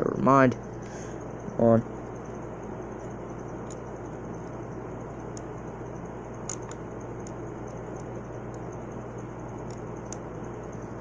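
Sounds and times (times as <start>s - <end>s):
steady hum and hiss: 0.0s - 11.0s.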